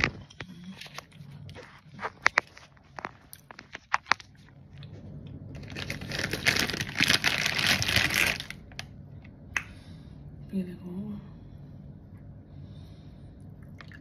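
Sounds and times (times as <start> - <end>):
loud crinkling rustling: 0.0 - 4.5, 5.6 - 8.8.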